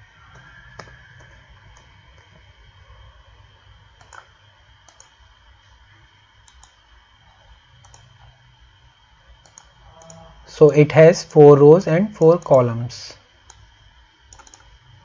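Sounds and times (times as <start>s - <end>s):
computer keyboard and mouse clicks: 0.3s - 2.4s, 4.0s - 5.2s, 6.4s - 6.8s, 7.8s - 8.3s, 9.4s - 10.2s, 14.3s - 14.7s.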